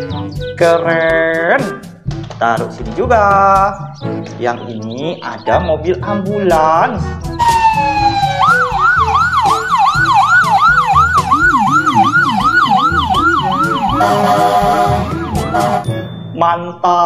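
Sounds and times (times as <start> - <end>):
background music: 0.0 - 17.0
ambulance siren yelping: 7.4 - 16.0.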